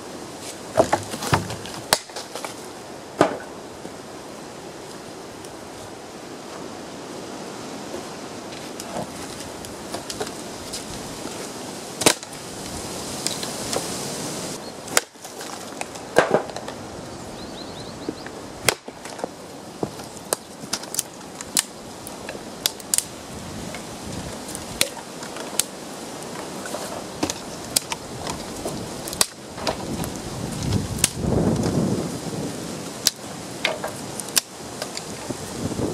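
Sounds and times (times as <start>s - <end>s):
dry branches snapping: 0.8s - 2.6s, 12.0s - 13.8s, 14.9s - 16.8s, 18.6s - 31.8s, 32.8s - 35.4s.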